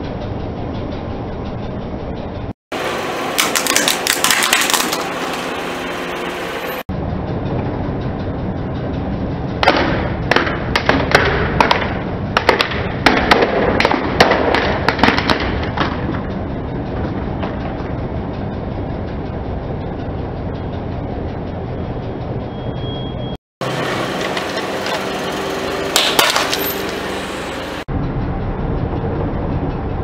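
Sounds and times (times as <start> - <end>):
car rumble: 0.0 - 30.0
dense crackling: 2.7 - 6.6, 23.6 - 27.9
bowl cracking and snapping: 3.4 - 5.1.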